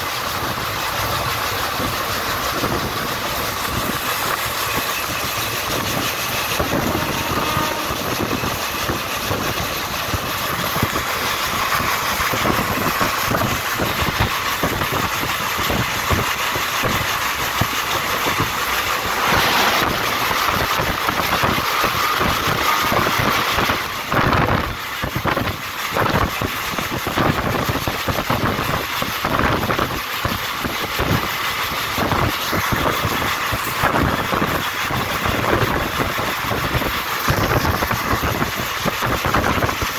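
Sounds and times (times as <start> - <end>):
passing train whoosh: 0.0 - 39.9
train rushing at speed: 0.0 - 39.9
wheels clattering over rail joints: 0.0 - 39.9.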